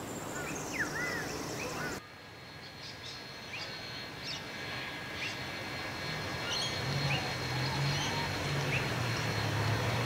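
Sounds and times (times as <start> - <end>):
birds chirping: 0.0 - 2.0.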